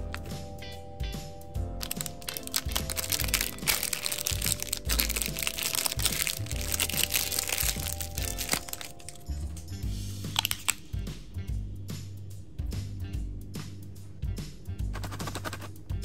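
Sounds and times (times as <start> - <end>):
background music with low beat: 0.0 - 16.0
plastic candy wrapper crinkling: 1.8 - 9.3, 10.3 - 10.8.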